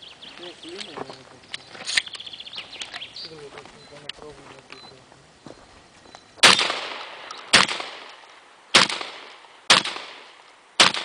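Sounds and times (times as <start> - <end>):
shotgun shots echoing: 6.4 - 11.0.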